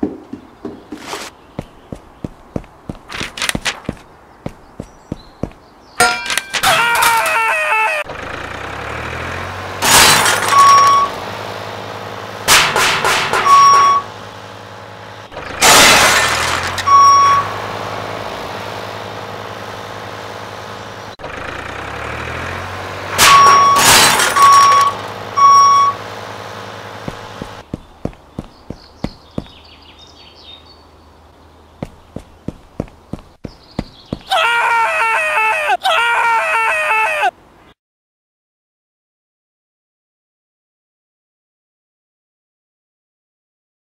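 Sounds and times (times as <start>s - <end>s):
heavy machine engine running: 8.1s - 29.7s
loud crashes: 9.8s - 11.1s, 15.4s - 17.1s, 23.1s - 25.0s
short steady beeps: 13.5s - 14.1s, 16.9s - 17.5s, 23.3s - 26.0s.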